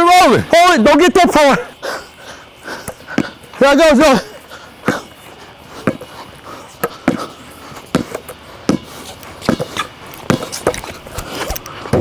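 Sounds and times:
basketball bouncing on concrete: 4.8 - 5.1, 5.8 - 6.1, 6.8 - 7.3, 7.9 - 10.9.

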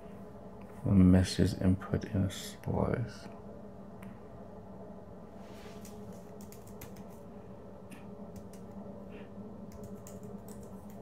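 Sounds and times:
computer keyboard typing: 5.8 - 7.2, 8.3 - 8.8, 9.7 - 11.0.

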